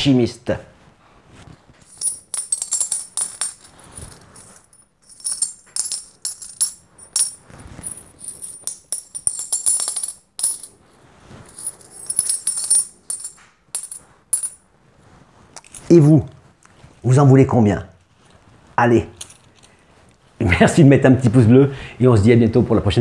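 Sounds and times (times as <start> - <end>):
coins clinking and jingling: 1.9 - 10.8, 11.4 - 14.6, 19.2 - 19.7.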